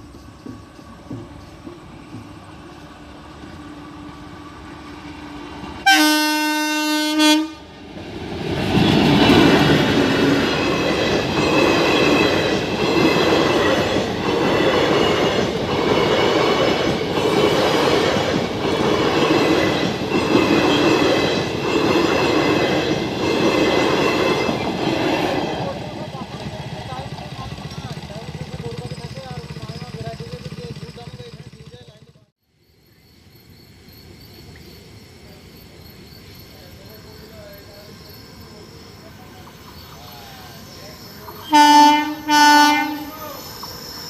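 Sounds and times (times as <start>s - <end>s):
train rumbling: 0.0s - 32.3s, 32.9s - 44.0s
train horn blast: 5.8s - 7.8s, 41.4s - 43.2s.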